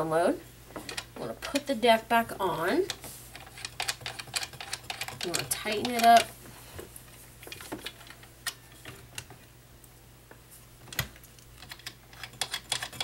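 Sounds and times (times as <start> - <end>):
sewing machine parts clicking: 2.9 - 6.3, 11.6 - 13.0
screw being tightened: 3.3 - 6.3, 11.6 - 13.0.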